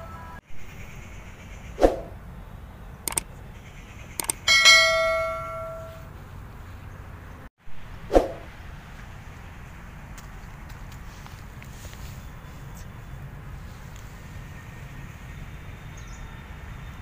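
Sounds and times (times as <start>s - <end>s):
mouse clicks: 3.1s - 3.3s, 4.2s - 4.4s
notification bell ding: 4.5s - 6.0s.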